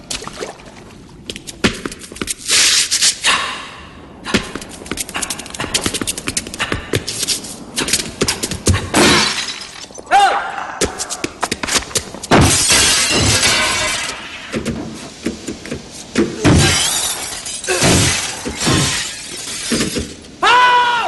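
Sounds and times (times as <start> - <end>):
glass shattering: 9.0 - 10.1, 12.3 - 14.4, 16.4 - 20.2.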